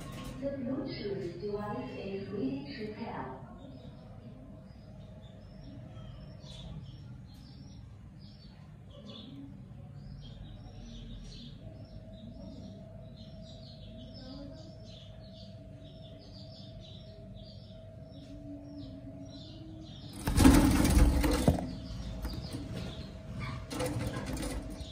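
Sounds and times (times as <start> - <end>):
budgerigars chirping: 10.2 - 24.9.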